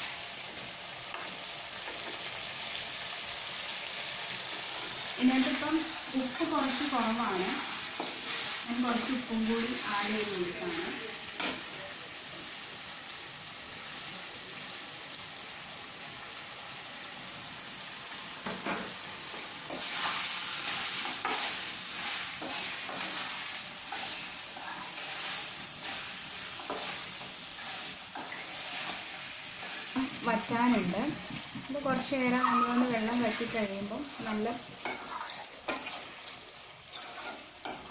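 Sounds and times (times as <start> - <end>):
meat sizzling in a pan: 0.0 - 37.9
spoon scraping a pan: 4.6 - 9.8, 19.7 - 30.1, 31.4 - 37.9.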